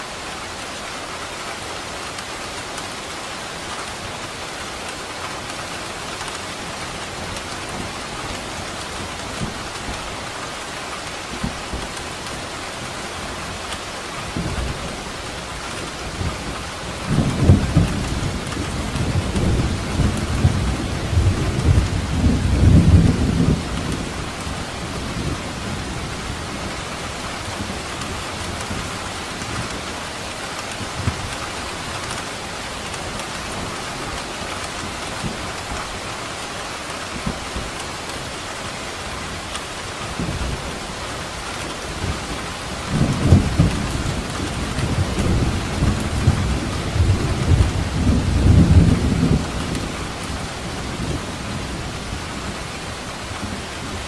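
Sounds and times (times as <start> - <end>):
heavy rain: 0.0 - 54.0
thunder rumbling: 15.7 - 26.8, 41.5 - 54.0.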